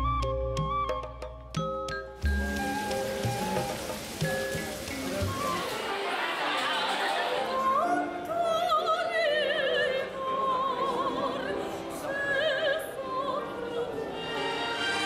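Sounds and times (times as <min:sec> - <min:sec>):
piano: 0:00.0 - 0:15.0
violin: 0:02.2 - 0:15.0
woman singing operatic: 0:06.8 - 0:15.0.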